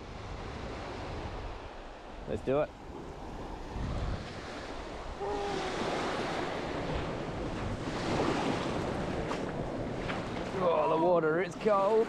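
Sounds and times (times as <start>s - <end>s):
wind on microphone: 0.0s - 2.2s, 2.8s - 11.0s
waves washing over pebbles: 4.3s - 12.0s.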